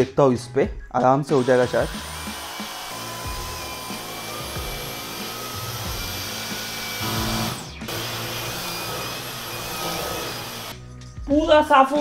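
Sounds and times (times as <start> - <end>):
vacuum cleaner motor whine: 1.9 - 10.7.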